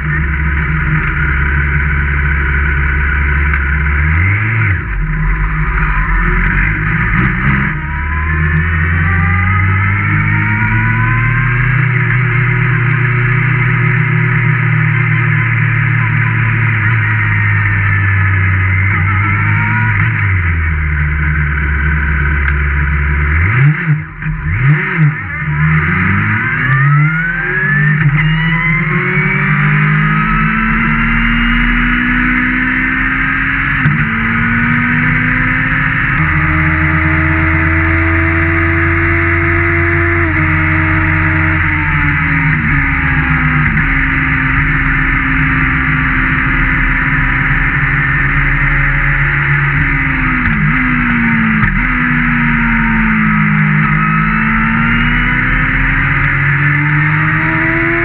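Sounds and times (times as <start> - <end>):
race car engine revving: 0.0 - 58.0
road and wind rush: 0.0 - 58.0.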